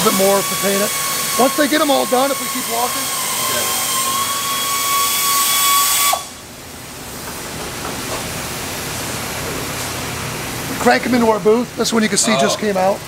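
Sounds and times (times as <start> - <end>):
thin steady whistle: 0.0 - 6.4.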